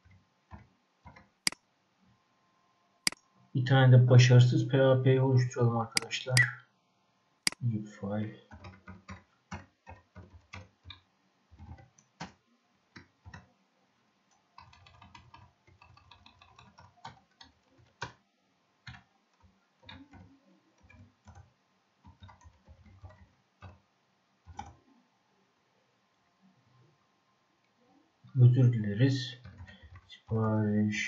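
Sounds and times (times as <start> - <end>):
keyboard keystrokes clicking: 14.6 - 18.2.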